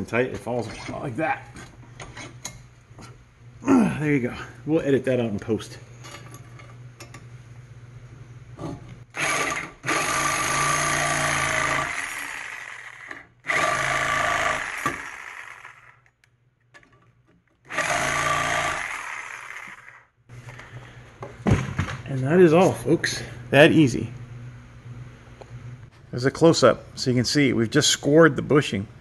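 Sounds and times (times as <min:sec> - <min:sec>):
reciprocating saw cutting metal: 0:09.2 - 0:16.1, 0:17.7 - 0:20.0.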